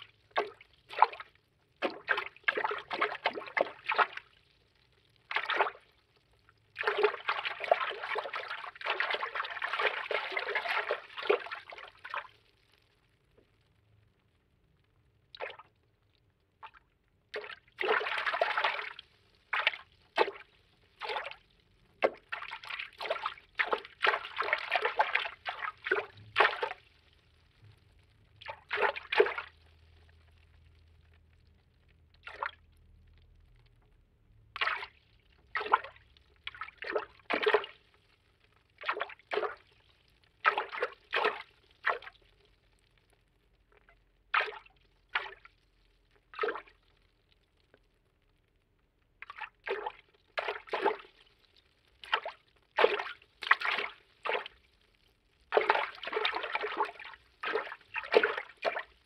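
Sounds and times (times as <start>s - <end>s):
bursts of moving water: 0.0s - 12.9s, 16.6s - 33.6s, 34.5s - 42.5s, 49.2s - 59.0s.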